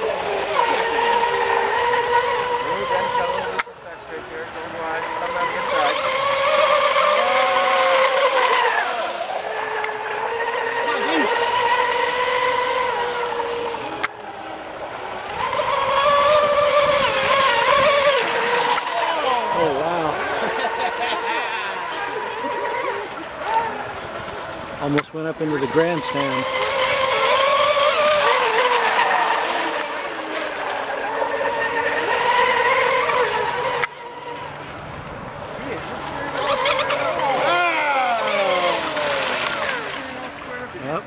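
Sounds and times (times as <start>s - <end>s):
electric motors whining: 0.0s - 41.0s
water hiss from boat hulls: 8.4s - 9.9s.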